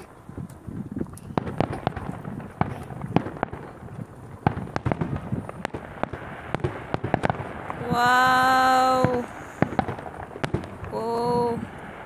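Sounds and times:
fireworks bursting and crackling: 0.0 - 12.0.

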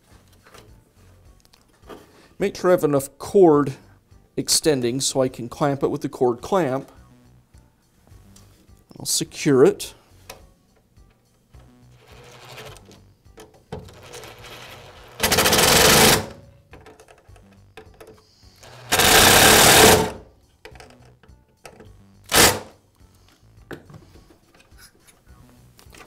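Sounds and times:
cordless driver spinning: 18.6 - 20.1.

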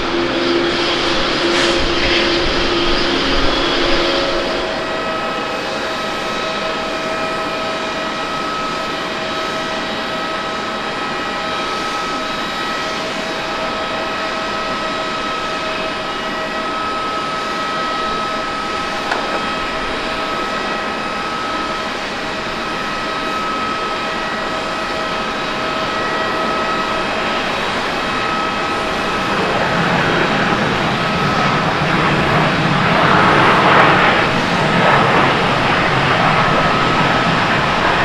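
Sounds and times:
jet engines whining: 0.0 - 38.0
rushing roar: 28.4 - 38.0.

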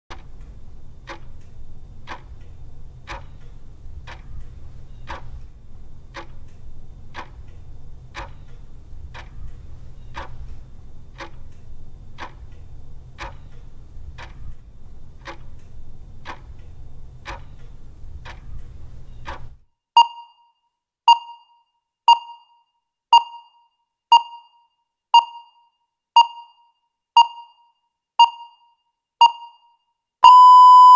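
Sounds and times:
low steady rumble: 0.1 - 19.6
clock ticking: 0.1 - 20.2, 23.1 - 24.6, 26.2 - 26.6, 27.2 - 27.6
short ringing beeps: 20.0 - 30.9.

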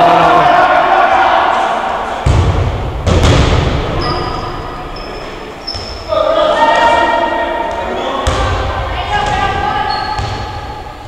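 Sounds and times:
players calling out: 0.0 - 2.9
ball thudding in gymnasium: 2.2 - 3.8.

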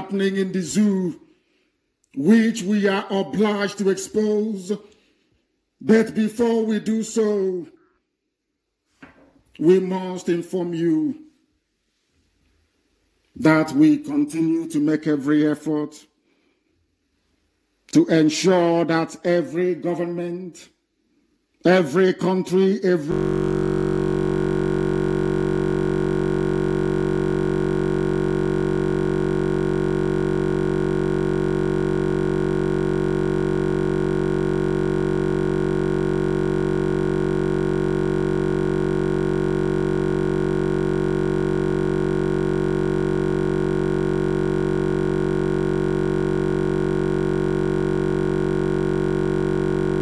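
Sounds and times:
electronic buzzing drone: 23.1 - 50.0.

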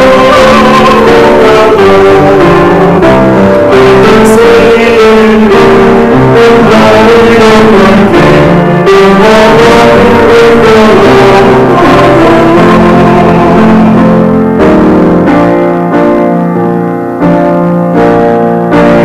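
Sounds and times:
voices singing a hymn: 0.0 - 14.5
instrumental accompaniment: 0.0 - 19.0.

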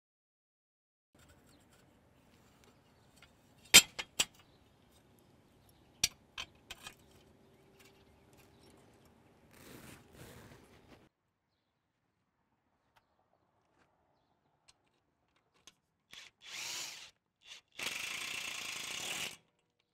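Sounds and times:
soft metal scrapes: 1.2 - 3.8.

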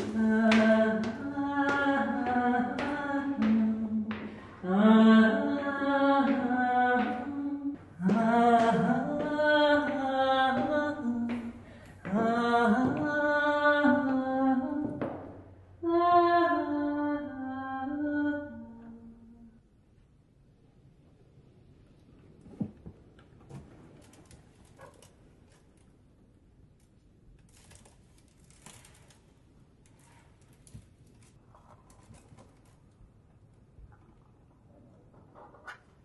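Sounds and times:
person singing unaccompanied: 0.0 - 15.0.

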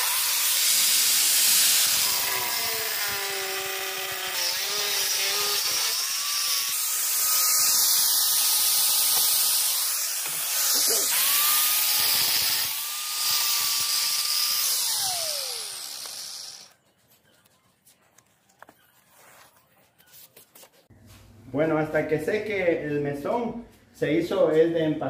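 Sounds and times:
power tool motor whine: 0.0 - 16.7.

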